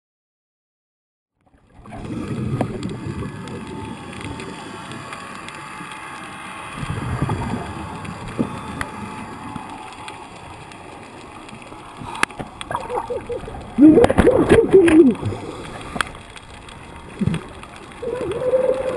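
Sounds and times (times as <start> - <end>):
underwater rush of current: 1.6 - 18.9.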